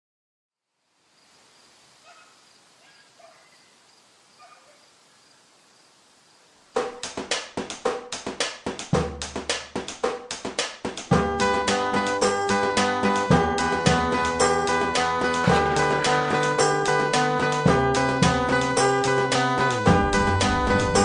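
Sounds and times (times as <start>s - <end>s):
faint outdoor hiss: 0.6s - 8.8s
distant dog barks: 2.0s - 3.6s, 4.4s - 5.0s
music with choppy drum beat: 6.8s - 11.4s.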